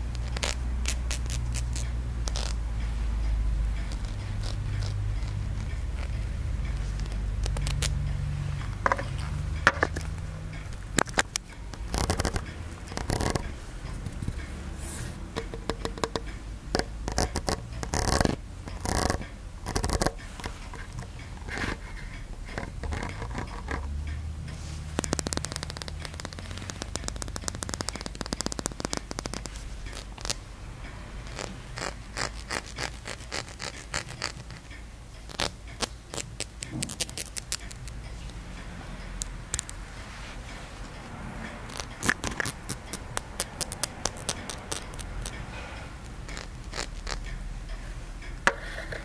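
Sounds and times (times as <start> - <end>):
sharp clicks and scraping strokes: 0.0 - 49.0
low handling rumble: 1.8 - 27.5.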